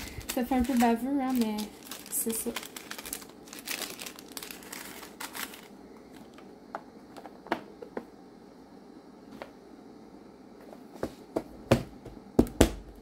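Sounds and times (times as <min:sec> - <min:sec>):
plastic bags crinkling: 0:00.0 - 0:06.4.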